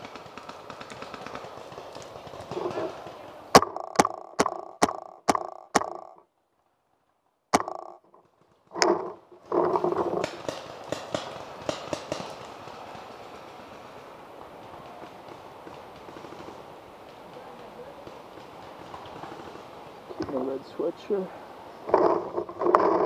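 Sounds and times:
paintball marker shots: 0:03.5 - 0:06.2, 0:07.6 - 0:07.9.

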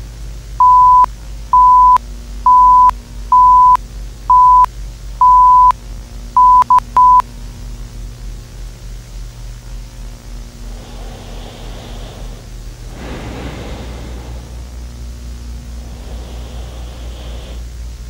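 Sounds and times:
low hum and hiss: 0:00.0 - 0:18.0
electronic beeps: 0:00.6 - 0:05.7, 0:06.4 - 0:07.2.

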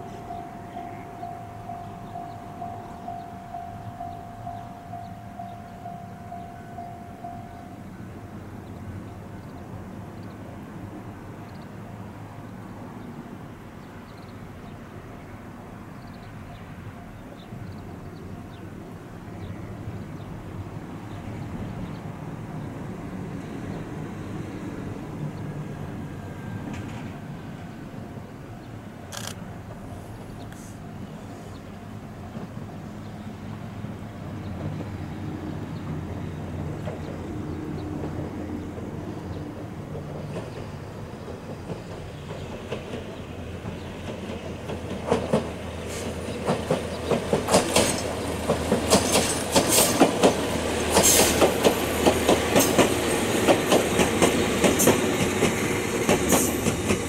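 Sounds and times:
train whining tone: 0:00.0 - 0:09.8, 0:23.7 - 0:57.0
electric train running hum: 0:00.0 - 0:57.0.

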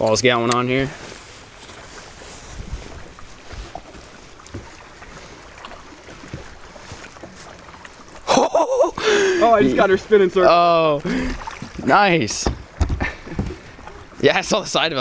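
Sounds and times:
water moving around boat: 0:00.0 - 0:15.0
faint knocks from boat: 0:01.6 - 0:08.3, 0:11.3 - 0:14.2
wind on microphone: 0:02.4 - 0:03.8.

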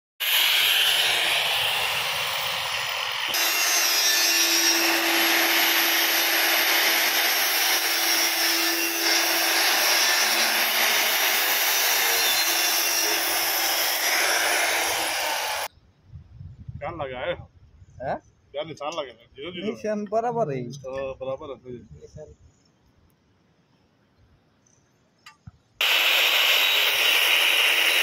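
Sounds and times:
angle grinder cutting steel pipe: 0:00.2 - 0:15.7, 0:25.8 - 0:28.0.

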